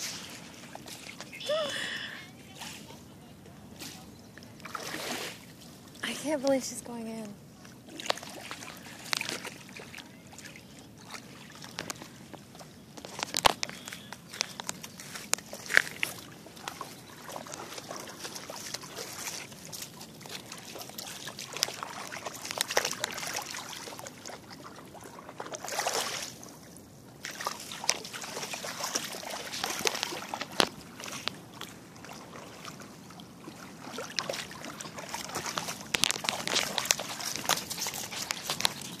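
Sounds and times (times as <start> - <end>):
river water lapping on rocks: 0.0 - 1.9, 3.9 - 39.0
dogs splashing in water: 4.6 - 5.6, 7.8 - 39.0.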